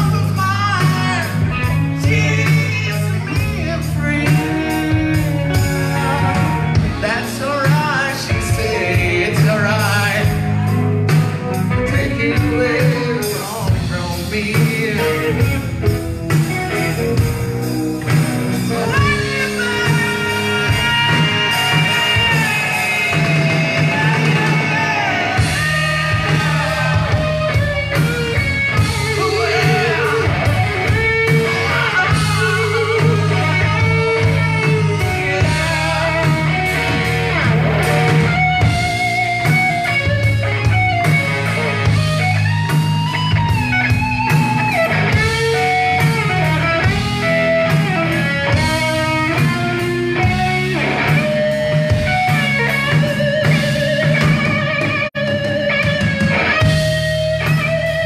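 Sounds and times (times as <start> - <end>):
man singing: 0.0 - 15.9, 18.7 - 40.1
drums: 0.0 - 58.0
electric guitars: 0.0 - 58.0
live rock band playing: 0.0 - 58.0.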